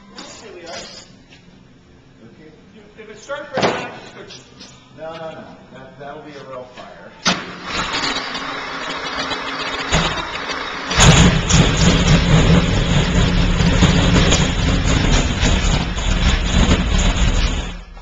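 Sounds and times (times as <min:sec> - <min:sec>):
racing engine cranking and running: 0:07.3 - 0:18.0.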